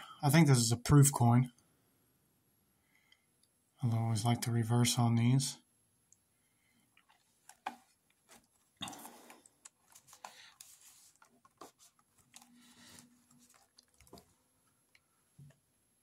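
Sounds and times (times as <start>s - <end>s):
cardboard rustling: 7.1s - 14.4s.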